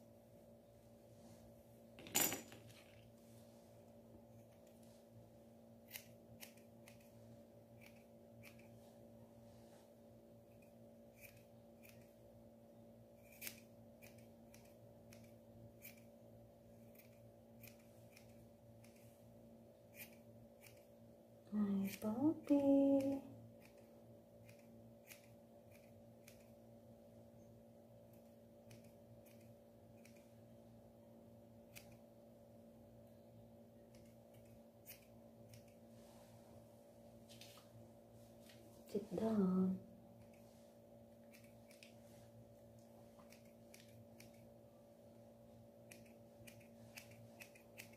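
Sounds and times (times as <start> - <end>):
faint low hum: 0.0 - 47.9
scissors snipping fur: 5.8 - 8.8, 10.5 - 12.2, 13.2 - 19.2, 19.9 - 21.0, 21.8 - 26.6, 28.1 - 30.4, 31.6 - 32.1, 33.8 - 35.8, 41.2 - 42.0, 43.1 - 44.5, 45.8 - 47.9.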